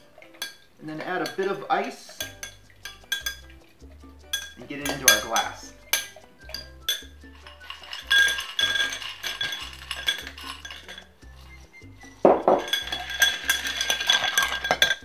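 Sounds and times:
bar spoon stirring ice: 0.0s - 15.0s
ice cubes clinking into glass: 0.3s - 3.6s, 4.3s - 15.0s
background music with bass line: 2.4s - 15.0s.

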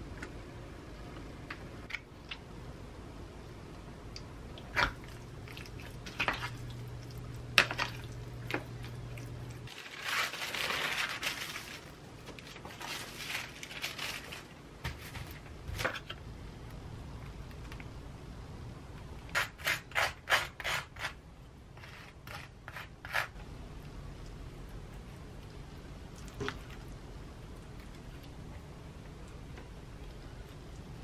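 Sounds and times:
low steady hum: 0.0s - 31.0s
paper rustling and crinkling: 9.7s - 16.0s.

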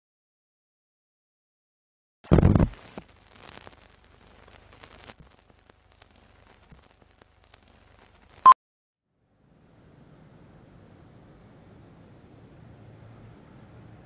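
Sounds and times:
film projector crackle and pops: 2.3s - 8.5s.

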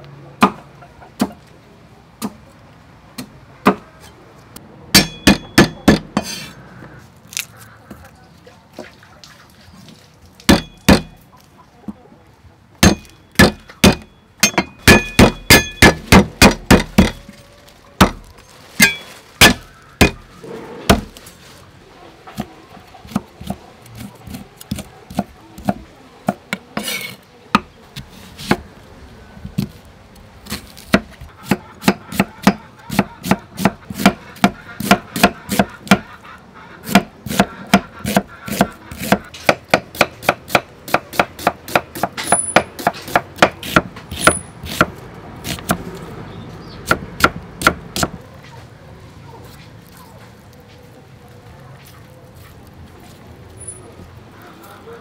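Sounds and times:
cleaver chopping on wooden block: 5.0s - 6.3s, 10.5s - 11.2s, 12.8s - 17.2s, 18.8s - 20.2s, 23.1s - 27.7s, 30.9s - 36.1s, 36.9s - 44.9s.

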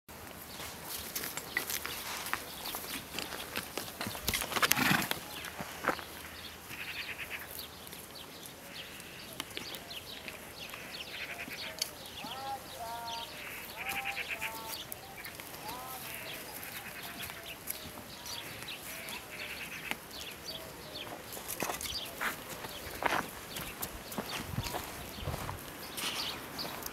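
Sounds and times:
small chirping calls: 5.2s - 26.9s
livestock bleating: 6.7s - 7.4s, 10.7s - 14.9s, 15.6s - 17.6s, 18.8s - 20.0s.

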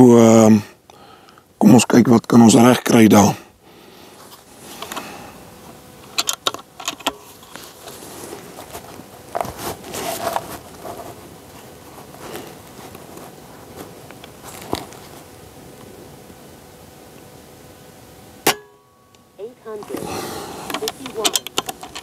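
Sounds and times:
rustling handling noise: 4.1s - 16.4s, 19.6s - 22.0s
metallic clicks: 20.7s - 22.0s.

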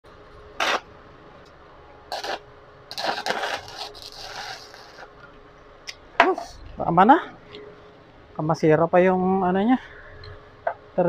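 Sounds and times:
faint steady hum: 0.0s - 11.0s
welding arc crackling: 0.6s - 0.9s, 2.1s - 5.2s.

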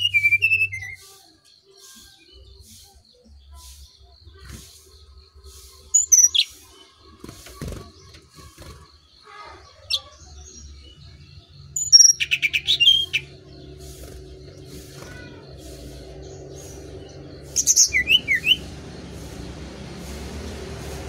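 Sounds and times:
bird calling: 11.8s - 21.0s.

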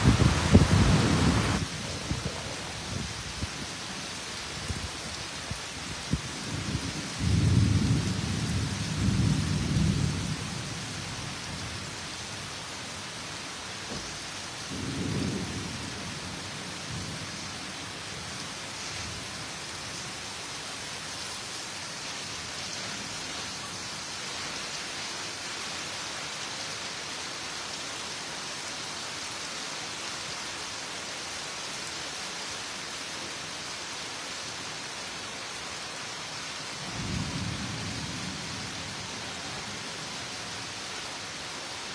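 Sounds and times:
thunder rumbles: 0.0s - 3.7s, 6.2s - 11.8s, 13.9s - 17.3s
rain downpour: 0.0s - 41.9s.

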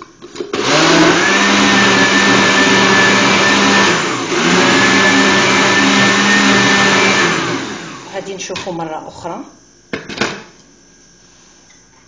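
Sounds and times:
electric blender motor whine: 0.0s - 8.5s.

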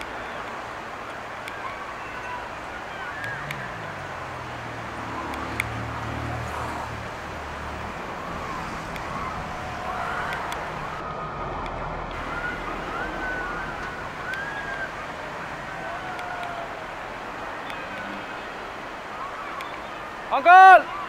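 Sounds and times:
river rapids rushing: 0.0s - 21.0s
high wavering calls: 12.1s - 21.0s.

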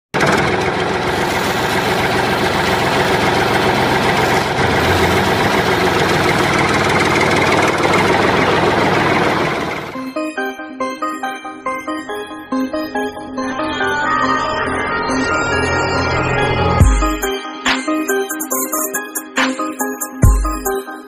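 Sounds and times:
motor running steadily: 0.2s - 10.0s.

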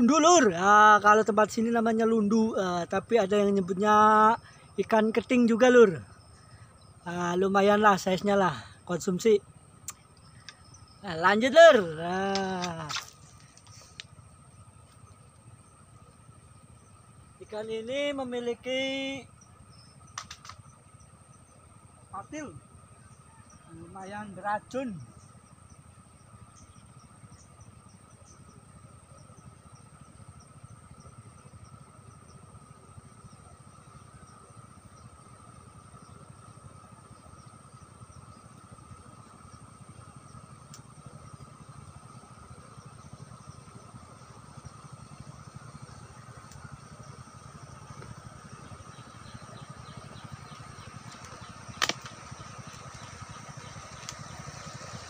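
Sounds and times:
faint rapid chirping: 0.0s - 55.0s
insect drone: 0.0s - 55.0s
low background rumble: 0.0s - 55.0s
sharp click: 20.1s - 20.6s, 51.1s - 52.2s.

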